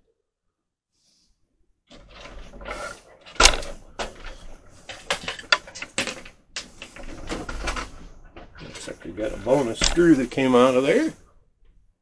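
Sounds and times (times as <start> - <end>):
hardware clicks and rattles: 1.9 - 11.2.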